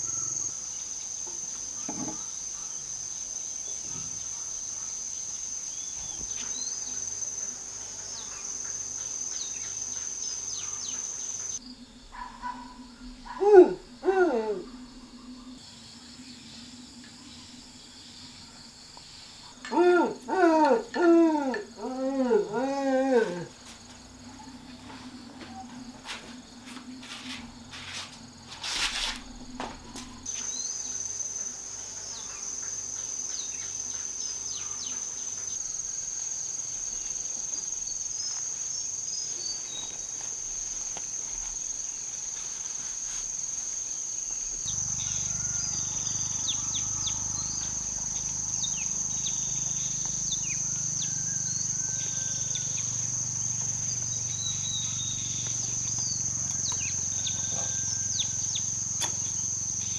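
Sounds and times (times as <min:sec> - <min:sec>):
insects droning: 0:00.0 - 0:59.9
bird chirps: 0:44.7 - 0:59.9.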